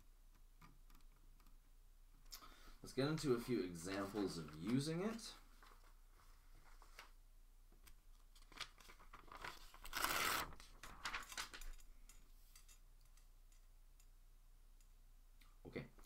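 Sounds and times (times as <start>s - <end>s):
paper rustling: 3.7s - 7.2s, 8.2s - 11.8s.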